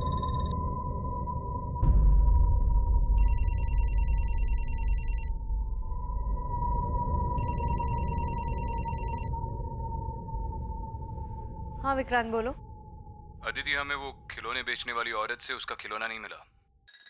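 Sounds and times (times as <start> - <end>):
steady low drone: 0.0 - 14.7
mobile phone ringing: 3.2 - 5.3, 7.4 - 9.3.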